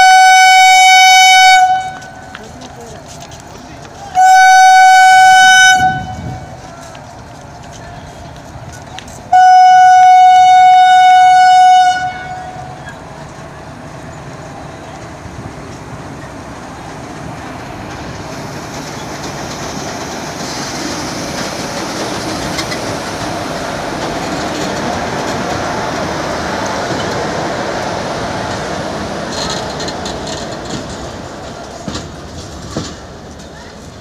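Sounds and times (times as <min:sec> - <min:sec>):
train horn blast: 0:00.0 - 0:02.3, 0:04.2 - 0:06.6, 0:09.3 - 0:12.8
train running noise: 0:00.0 - 0:34.0.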